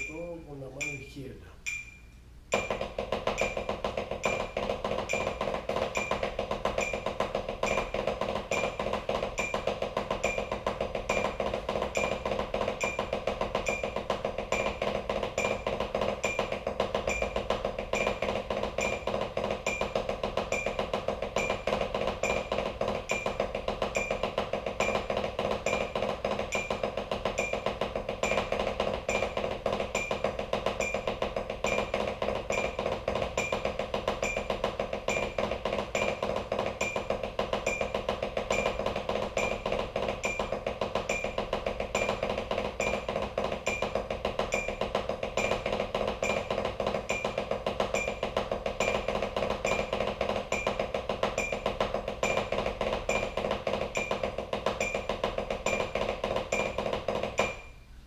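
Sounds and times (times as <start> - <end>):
metronome clicking: 0.8 - 2.7
drumstick rolls on practice pad: 2.5 - 57.8.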